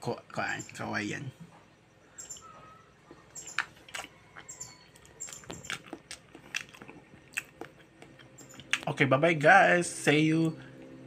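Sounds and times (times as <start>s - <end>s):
person chewing crunchy food: 2.1s - 9.0s.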